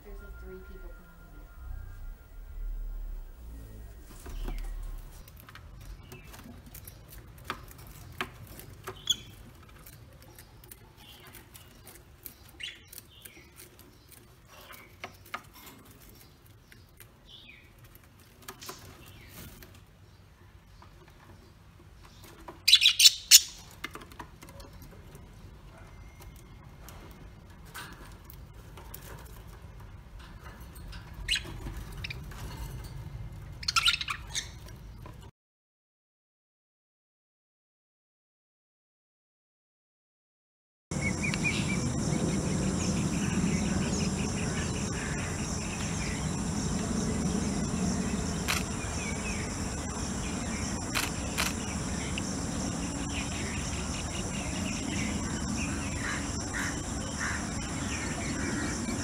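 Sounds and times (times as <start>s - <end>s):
low steady rumble: 0.0s - 5.3s, 40.9s - 59.0s
birds chirping: 0.0s - 7.0s, 8.0s - 15.3s, 40.9s - 59.0s.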